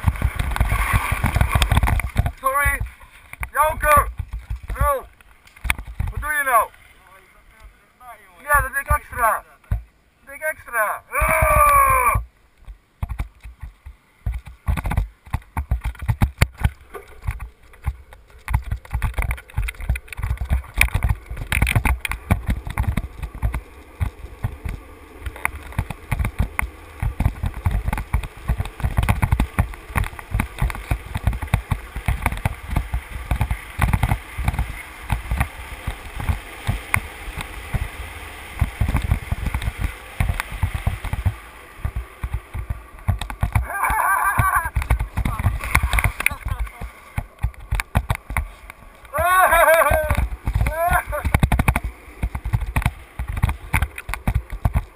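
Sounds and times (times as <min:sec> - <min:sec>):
wheels rolling on asphalt: 0:00.0 - 0:54.9
wind buffeting microphone: 0:13.0 - 0:54.9.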